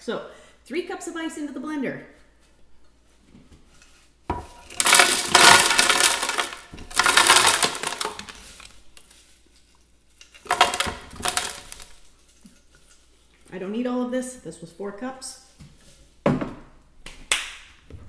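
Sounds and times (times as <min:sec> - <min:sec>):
crushed ice rattling into blender jar: 0:04.3 - 0:09.2, 0:10.2 - 0:12.4.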